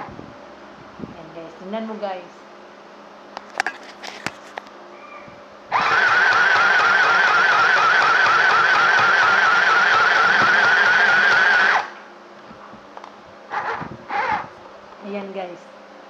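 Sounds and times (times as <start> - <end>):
sewing machine motor whine: 5.7 - 12.0.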